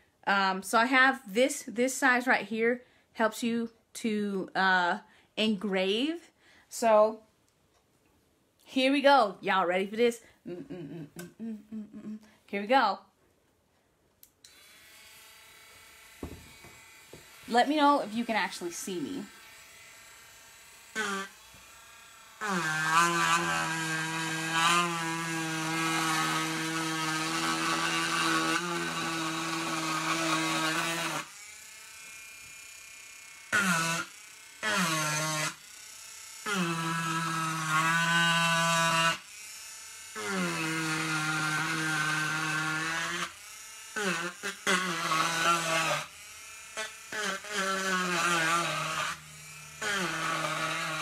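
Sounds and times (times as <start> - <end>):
bit engraving wooden board: 15.7 - 18.7, 22.4 - 31.4, 46.7 - 51.0.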